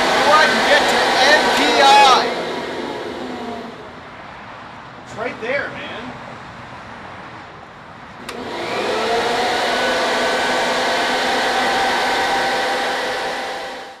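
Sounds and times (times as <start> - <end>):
electric blower running: 0.0 - 4.0, 8.2 - 14.0
blower switch click: 8.2 - 8.6.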